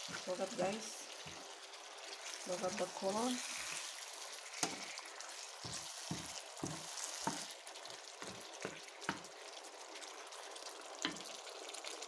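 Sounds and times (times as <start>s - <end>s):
stew sizzling in a pan: 0.0s - 12.0s
wooden spatula knocking on pan: 5.6s - 7.5s, 8.2s - 9.3s.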